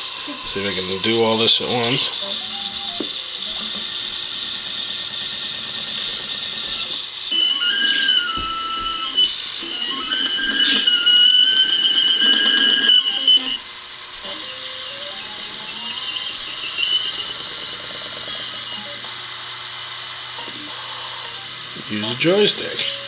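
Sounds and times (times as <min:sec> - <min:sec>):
stepper motors whining: 0:00.0 - 0:23.0.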